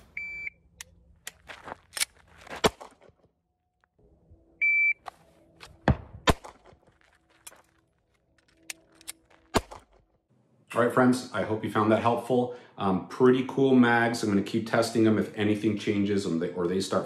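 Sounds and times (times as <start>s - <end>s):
shot timer beep: 4.6s - 5.0s
sharp cracks and clicks: 8.4s - 10.0s.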